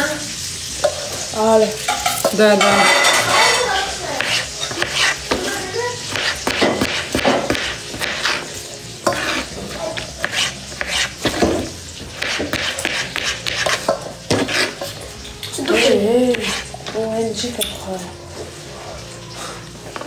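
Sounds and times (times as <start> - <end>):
knife chopping on cutting board: 4.2 - 5.5, 6.1 - 14.9, 15.6 - 16.7.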